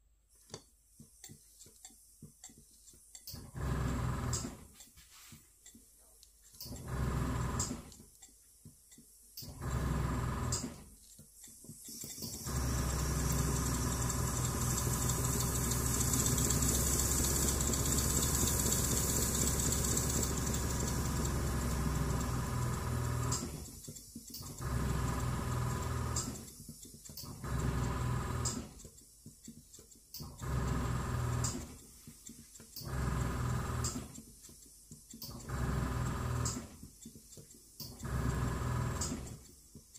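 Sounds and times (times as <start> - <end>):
model steam engine beating: 11.8 - 39.9.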